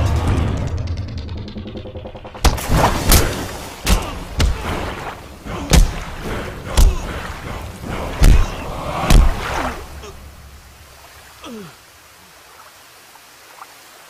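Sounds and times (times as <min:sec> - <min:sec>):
punch and kick impacts: 0:02.4 - 0:07.1, 0:08.1 - 0:09.5.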